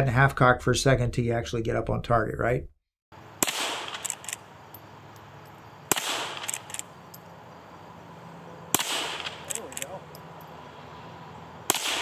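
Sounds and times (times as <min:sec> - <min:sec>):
rifle shot with echo: 0:03.4 - 0:04.2, 0:05.9 - 0:06.9, 0:08.7 - 0:09.9, 0:11.7 - 0:12.0.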